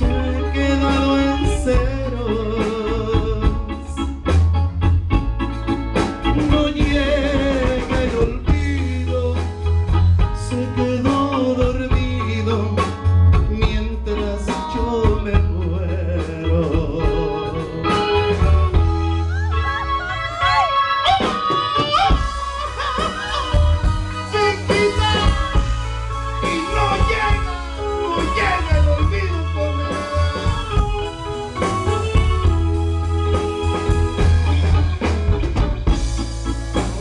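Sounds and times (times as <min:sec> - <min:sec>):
live band playing a ballad: 0:00.0 - 0:37.0
pulsing electric bass: 0:00.0 - 0:37.0
wavering melody line: 0:16.8 - 0:37.0.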